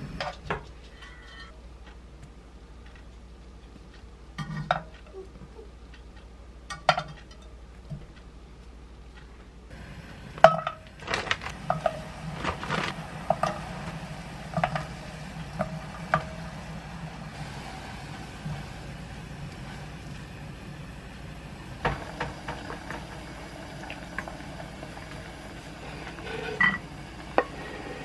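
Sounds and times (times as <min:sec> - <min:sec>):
hot water hissing: 0:11.4 - 0:28.0.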